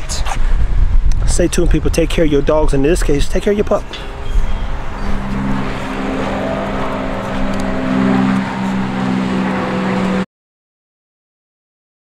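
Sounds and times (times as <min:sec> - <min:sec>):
rushing noise: 0:03.6 - 0:10.2
motor hum: 0:03.8 - 0:10.2.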